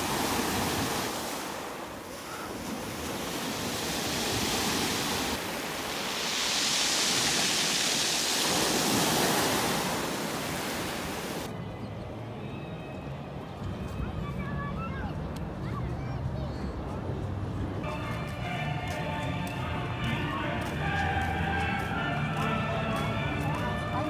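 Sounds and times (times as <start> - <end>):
waves breaking on pebble beach: 0.0 - 11.5.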